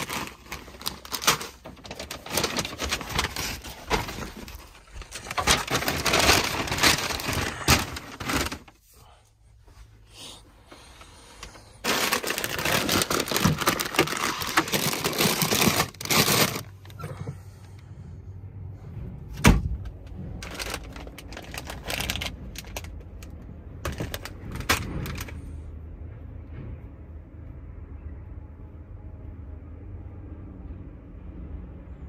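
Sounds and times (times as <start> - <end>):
packaging rustling and crinkling: 0.0 - 8.9, 10.7 - 17.0, 20.3 - 25.4.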